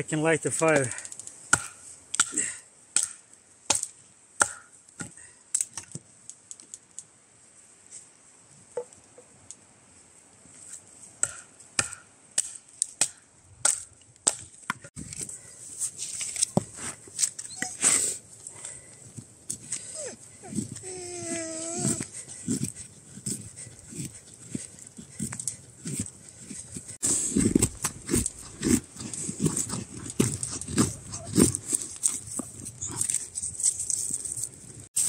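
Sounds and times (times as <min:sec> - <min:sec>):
firewood being chopped: 0:00.8 - 0:06.0, 0:11.2 - 0:15.2.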